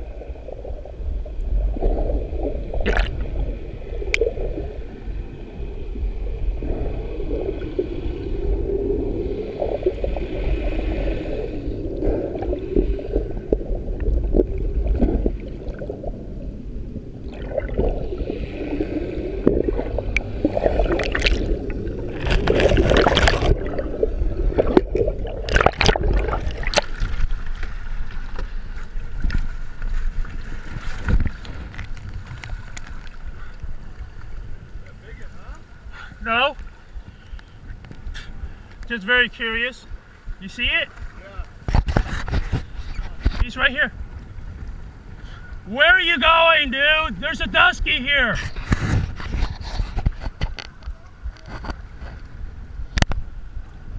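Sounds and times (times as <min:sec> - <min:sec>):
underwater gurgling: 0:00.0 - 0:35.9
loud water splashes: 0:01.8 - 0:03.4, 0:17.2 - 0:27.3.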